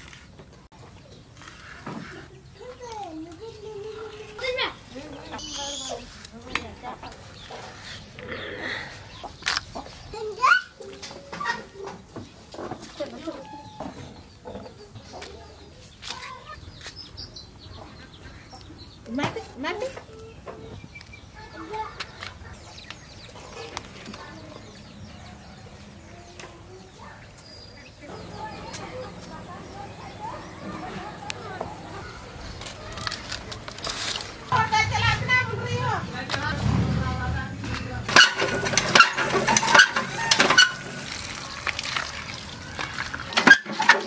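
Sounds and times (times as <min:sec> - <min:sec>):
chickens clucking: 0:00.4 - 0:33.7, 0:37.7 - 0:44.0
hand pump handle clanking: 0:38.1 - 0:42.1, 0:42.8 - 0:44.0
water gushing and splashing: 0:38.1 - 0:43.5.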